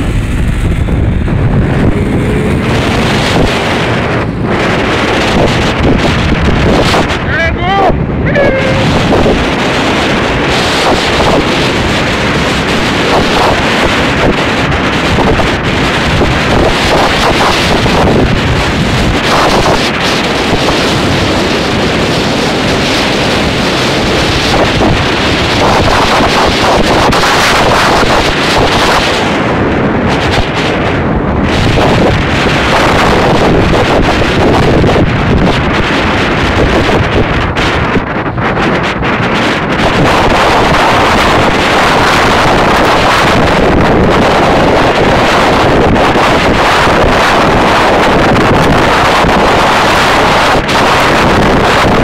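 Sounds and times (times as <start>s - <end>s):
motorcycle engine running: 0.0s - 7.3s
wind buffeting microphone: 0.0s - 52.0s.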